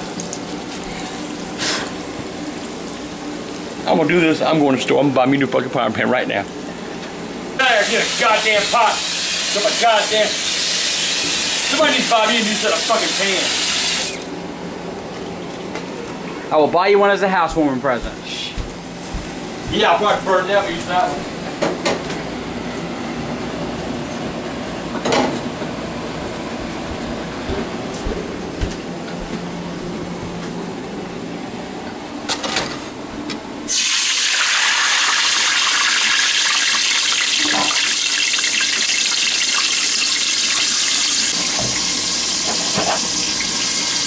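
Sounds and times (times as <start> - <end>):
grease sizzling in a pot: 7.2 - 14.2, 33.7 - 44.0.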